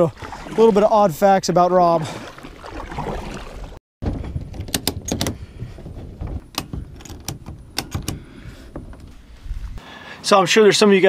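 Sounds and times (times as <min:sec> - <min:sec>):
plastic clicks and knocks: 0:06.5 - 0:08.2.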